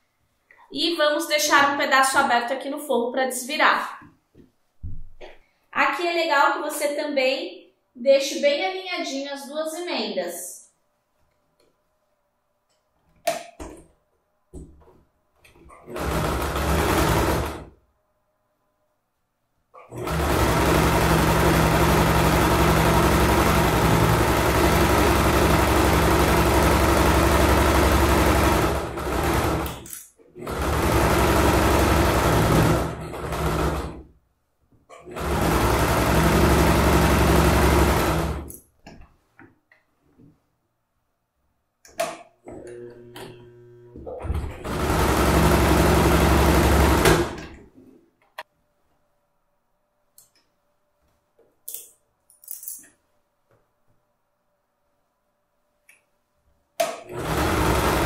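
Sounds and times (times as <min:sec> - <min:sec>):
sewing machine stitching: 0:15.6 - 0:17.7, 0:19.8 - 0:34.1, 0:34.9 - 0:38.5, 0:42.5 - 0:47.6, 0:56.8 - 0:58.0.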